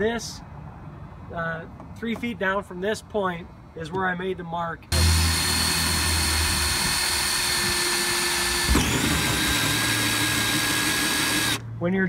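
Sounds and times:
cordless drill with hole saw whirring: 4.9s - 11.6s.

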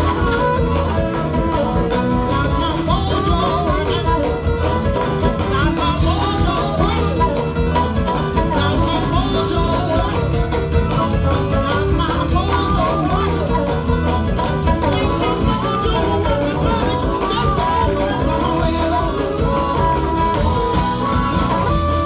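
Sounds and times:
blues band playing: 0.0s - 22.0s
harmonica through microphone: 0.0s - 22.0s
person singing: 0.0s - 22.0s.

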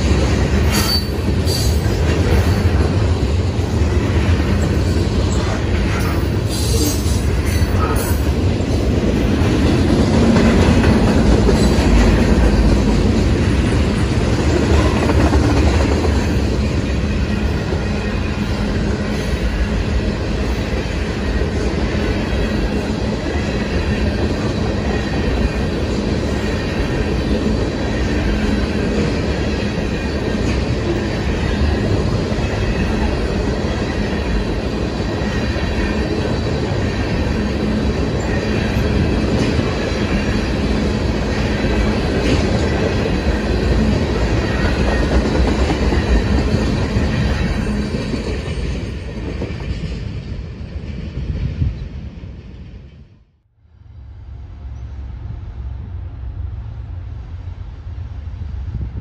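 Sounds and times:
steel wheels rumbling on rail: 0.0s - 59.0s
high-pitched wheel squeals: 0.7s - 1.9s.

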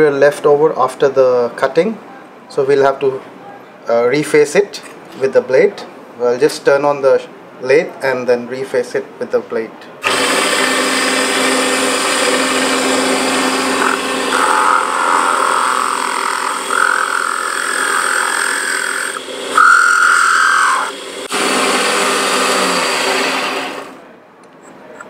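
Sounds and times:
blade scraping spinning wood: 10.0s - 24.0s
lathe motor whining: 10.0s - 24.0s.

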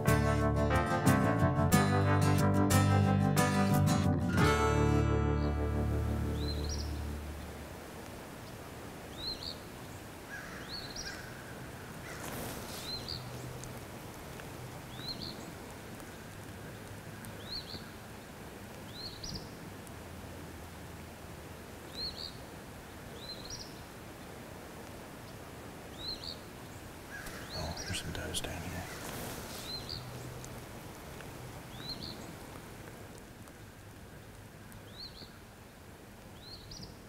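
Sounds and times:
outdoor background hiss: 0.0s - 37.0s
small bird chirping: 6.3s - 7.2s, 12.1s - 13.5s, 25.9s - 28.1s, 28.8s - 30.5s, 31.7s - 32.4s
rustling noise: 12.0s - 14.5s, 28.4s - 31.5s.

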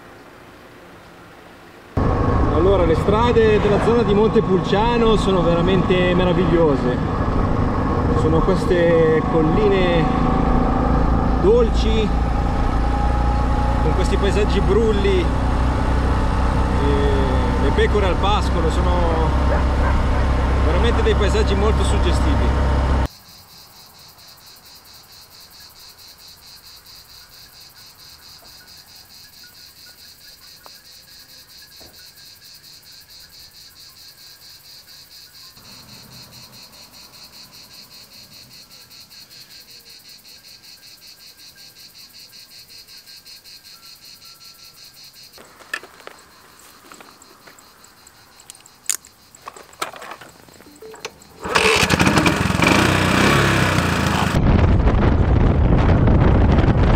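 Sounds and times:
scooter engine: 2.0s - 23.1s, 35.6s - 37.2s, 49.4s - 54.4s
insects chirring: 23.0s - 53.9s
wind noise: 54.2s - 56.9s.

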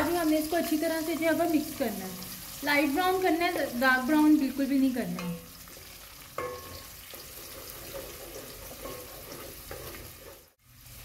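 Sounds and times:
onions sizzling in oil: 0.0s - 11.0s
wooden spoon scraping pot: 5.7s - 10.6s.

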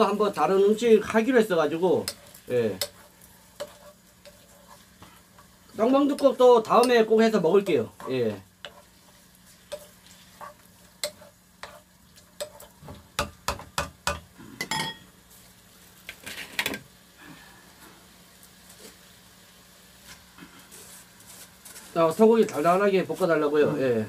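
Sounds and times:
beef sizzling: 0.0s - 24.0s
wooden spatula knocking a frying pan: 12.4s - 14.3s.

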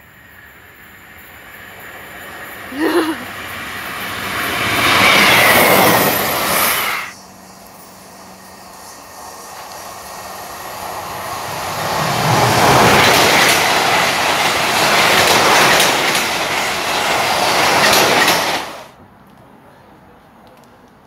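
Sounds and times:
train wheels rumbling on rails: 0.0s - 19.0s
wheels clicking over rail joints: 11.0s - 18.9s.

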